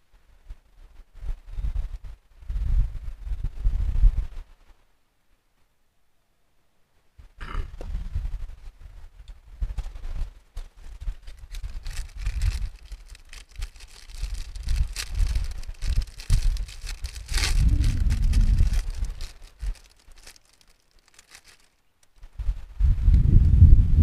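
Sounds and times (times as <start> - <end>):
plastic wrapper crinkling: 10.8 - 22.2
low rumbling thumps: 10.9 - 20.6
wrapper ripping: 10.9 - 22.2.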